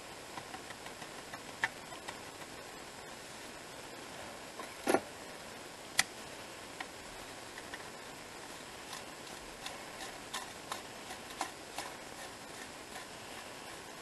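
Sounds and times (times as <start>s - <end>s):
faint hiss: 0.0s - 14.0s.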